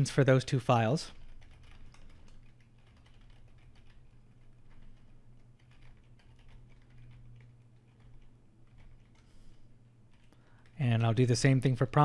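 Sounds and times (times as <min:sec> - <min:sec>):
low steady hum: 0:00.0 - 0:12.0
typing on keyboard: 0:01.1 - 0:09.3, 0:10.1 - 0:10.8.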